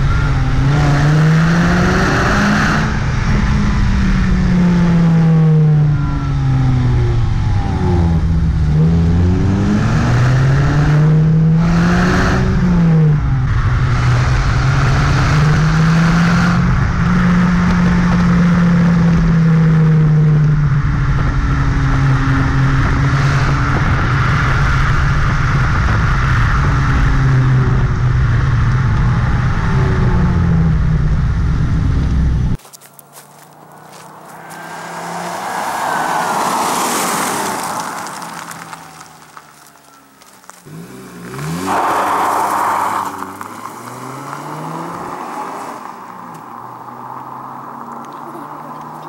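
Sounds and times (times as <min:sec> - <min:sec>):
car exhaust revving: 0:00.0 - 0:49.0
vehicle passing by: 0:32.8 - 0:49.0.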